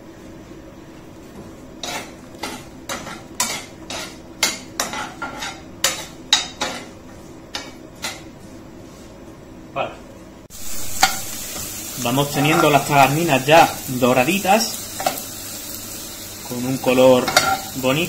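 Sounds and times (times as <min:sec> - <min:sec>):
utensil scraping a frying pan: 0:01.8 - 0:06.9, 0:10.8 - 0:13.7.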